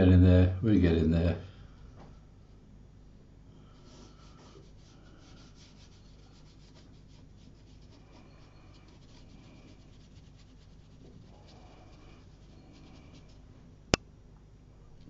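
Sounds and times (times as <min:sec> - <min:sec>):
brush strokes on paper: 0:03.7 - 0:13.5.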